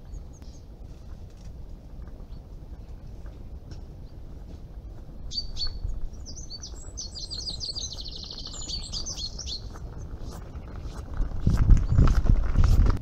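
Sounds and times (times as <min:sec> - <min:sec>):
songbird twittering song: 0:00.0 - 0:00.8, 0:02.0 - 0:12.2
low steady rumble: 0:00.0 - 0:13.0
barrow rolling on gravel: 0:00.8 - 0:13.0.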